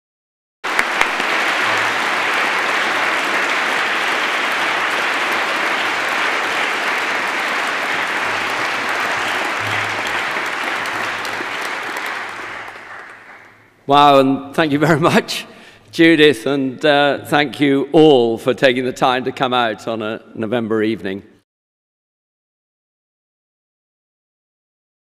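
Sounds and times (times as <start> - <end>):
large audience applauding: 0.6 - 13.8.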